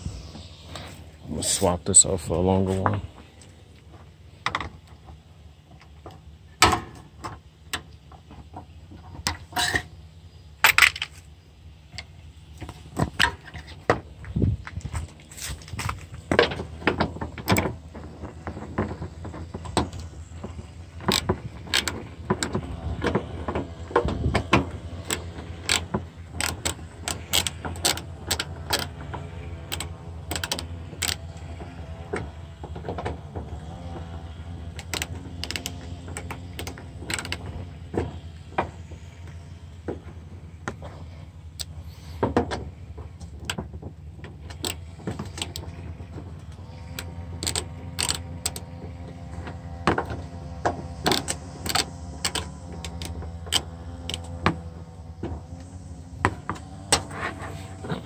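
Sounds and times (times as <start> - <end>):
socket ratchet clicking: 25.0 - 29.0, 29.6 - 31.4, 34.8 - 37.4, 46.8 - 48.7, 51.0 - 54.4.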